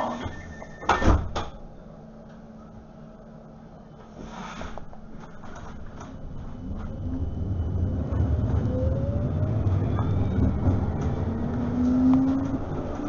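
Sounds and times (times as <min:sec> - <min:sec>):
tram drive whine rising: 0:00.0 - 0:13.0
tram wheels rumbling on rail: 0:04.9 - 0:13.0.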